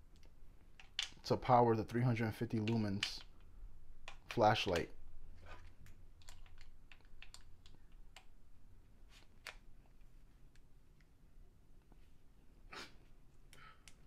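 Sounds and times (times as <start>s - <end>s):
hands clicking plastic casing: 0.2s - 1.2s.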